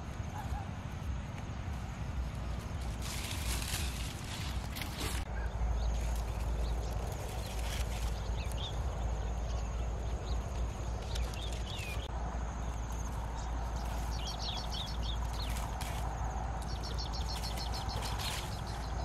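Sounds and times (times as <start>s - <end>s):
dry grass brushing: 0.0s - 9.1s, 10.9s - 19.0s
small birds chirping: 0.0s - 19.0s
steady low rumble: 0.0s - 19.0s.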